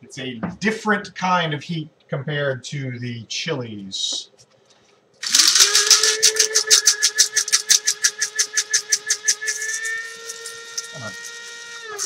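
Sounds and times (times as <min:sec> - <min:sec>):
spice grinder whirring: 0:05.2 - 0:12.0
spices rattling in grinder: 0:05.2 - 0:12.0.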